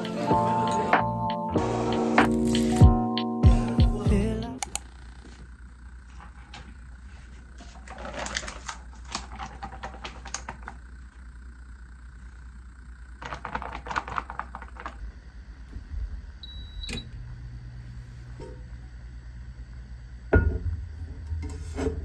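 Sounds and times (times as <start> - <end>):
low steady hum: 3.4 - 22.0
plastic wrapping crackling: 7.7 - 10.8, 13.2 - 15.0
short electronic beeps: 16.4 - 17.0.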